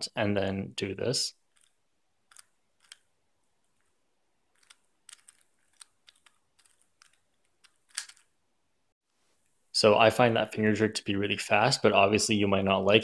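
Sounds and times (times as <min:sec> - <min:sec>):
puzzle cube layers clicking: 0:01.5 - 0:08.3.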